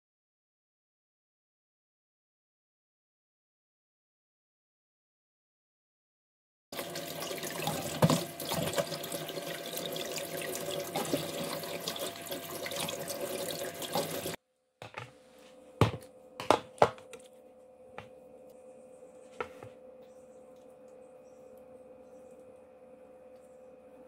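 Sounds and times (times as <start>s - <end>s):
tap water splashing into bowl: 7.4s - 9.2s.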